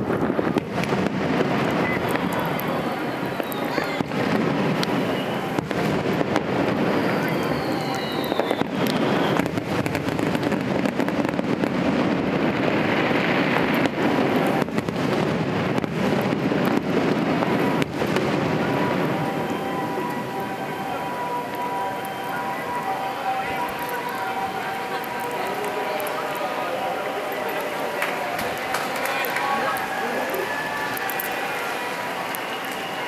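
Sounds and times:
fireworks bangs: 0.0s - 33.0s
fireworks crackling hiss: 0.0s - 33.0s
falling whistle: 1.8s - 4.1s, 4.9s - 5.7s, 6.9s - 9.6s, 18.6s - 33.0s.

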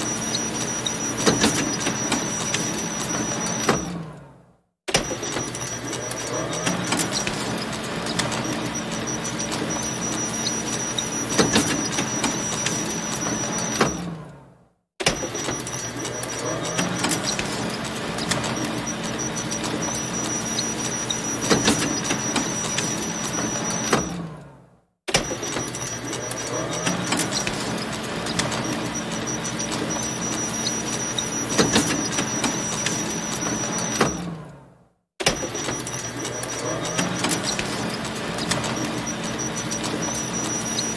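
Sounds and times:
photocopier whirring: 0.0s - 4.1s, 5.0s - 14.2s, 15.1s - 24.3s, 25.2s - 34.5s, 35.2s - 40.9s
loud mechanical clacking: 4.9s - 13.6s, 15.0s - 23.4s, 25.1s - 34.1s, 35.2s - 40.9s.

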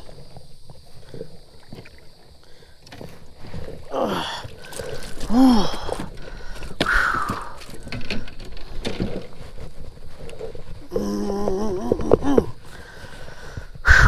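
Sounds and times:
man groaning: 3.9s - 4.4s, 10.9s - 12.6s.

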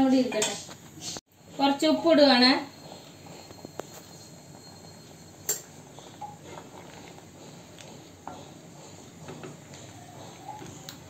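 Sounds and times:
pot simmering hiss: 0.1s - 11.0s
wooden spatula stirring: 5.9s - 10.8s.

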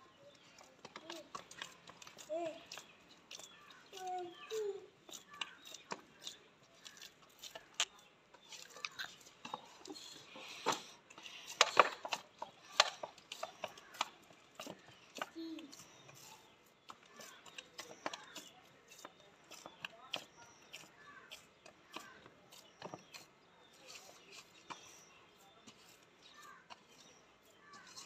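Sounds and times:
dough kneading in steel bowl: 11.5s - 28.0s.

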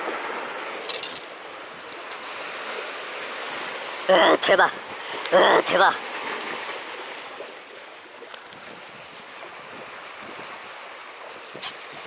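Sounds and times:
sea waves against breakwater: 0.0s - 12.0s
wind on microphone: 8.3s - 10.8s, 11.4s - 12.0s.

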